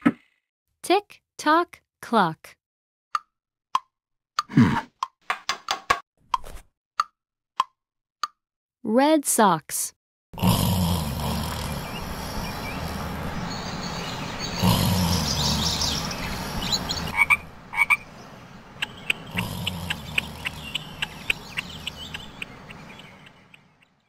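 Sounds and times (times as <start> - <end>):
cartoon frogs croaking: 10.4 - 18.1, 18.7 - 23.8.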